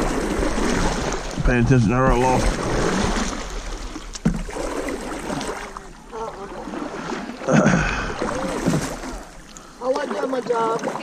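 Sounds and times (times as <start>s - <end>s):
people talking indistinctly: 1.4s - 2.6s, 5.8s - 11.0s.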